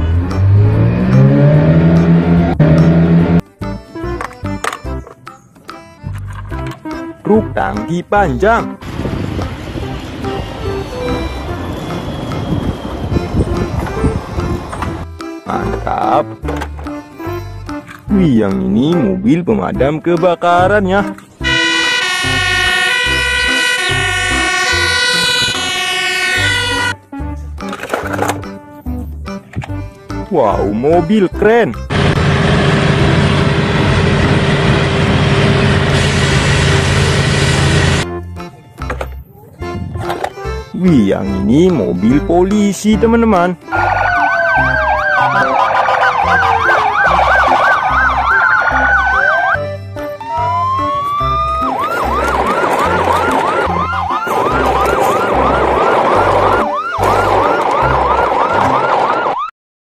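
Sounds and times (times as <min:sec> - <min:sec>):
diesel engine droning: 0:00.0 - 0:03.6, 0:08.7 - 0:15.2, 0:31.8 - 0:38.2, 0:43.0 - 0:58.9
police siren wailing and yelping: 0:21.4 - 0:27.0, 0:43.6 - 0:59.5.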